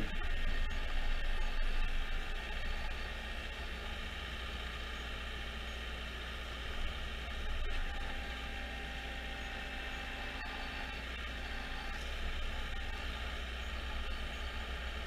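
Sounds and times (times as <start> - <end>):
machine engine running under load: 0.0 - 5.7.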